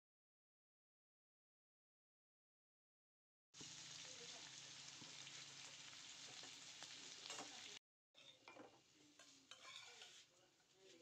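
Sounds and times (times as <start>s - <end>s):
food sizzling in a wok: 3.6s - 11.0s
spatula scraping a wok: 6.2s - 11.0s
clinks and scrapes on a plate: 7.2s - 11.0s.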